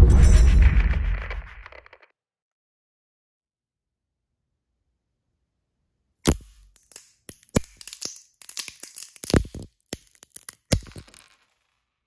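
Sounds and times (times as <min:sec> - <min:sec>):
nutcracker crushing walnut shell: 0:06.2 - 0:11.7.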